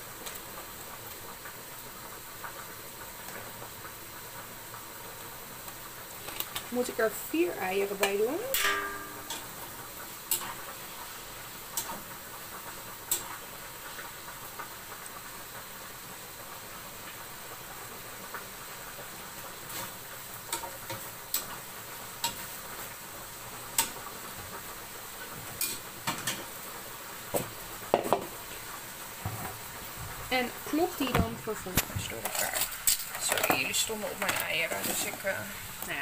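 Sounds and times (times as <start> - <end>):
bacon sizzling in a frying pan: 0.0 - 36.0
utensil clicking against pan: 10.3 - 10.7, 11.7 - 12.0, 13.1 - 13.4, 20.5 - 21.6, 22.2 - 22.4, 23.7 - 24.0, 25.6 - 26.5.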